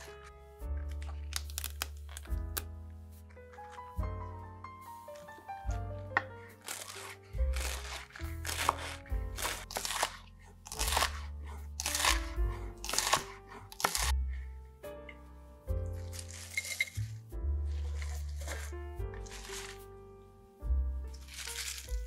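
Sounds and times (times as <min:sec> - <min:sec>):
background music: 0:00.0 - 0:22.0
knife chopping cabbage on board: 0:06.2 - 0:14.1.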